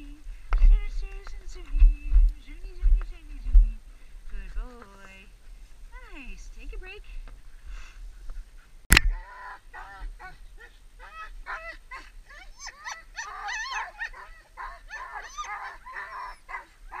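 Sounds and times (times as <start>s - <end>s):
sled dogs yelping and yipping: 8.1s - 17.0s.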